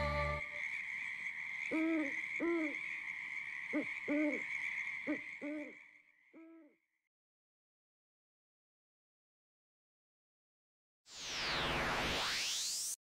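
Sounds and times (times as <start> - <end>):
owl hooting: 1.6 - 2.8, 3.6 - 6.8
high-pitched background tone: 11.1 - 13.0.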